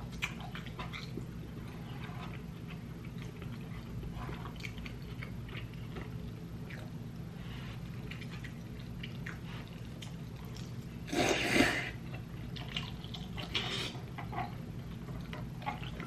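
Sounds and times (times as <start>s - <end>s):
slurping noodles: 11.1s - 12.0s.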